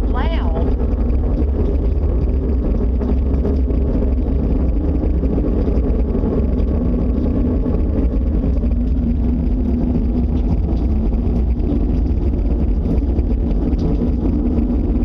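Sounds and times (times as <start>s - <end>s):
low rumbling drone: 0.0s - 15.0s.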